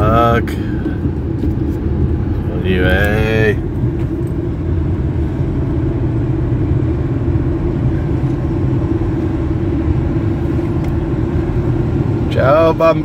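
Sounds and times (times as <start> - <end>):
moving car rumble: 0.0 - 13.0
road and tyre noise: 0.0 - 13.0.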